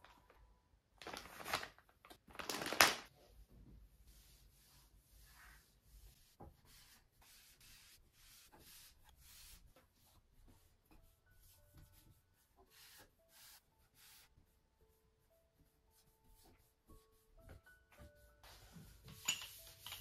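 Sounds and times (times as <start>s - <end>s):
faint music: 0.0s - 20.0s
cloth rubbing on wood: 4.1s - 12.0s.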